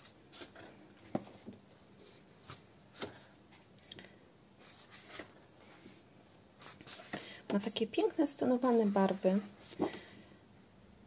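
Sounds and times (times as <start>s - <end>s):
paper sheets rustling: 8.5s - 10.1s.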